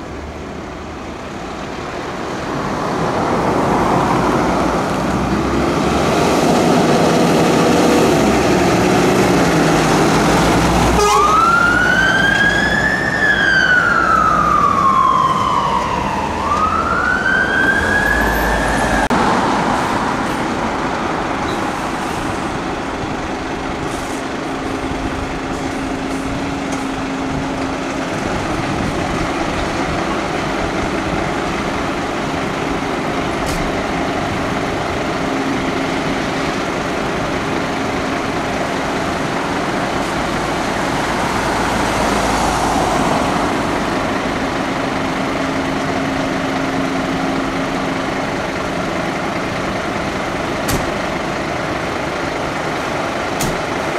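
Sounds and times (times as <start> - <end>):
fire engine diesel engine: 0.0 - 53.9
siren wailing: 11.0 - 19.2.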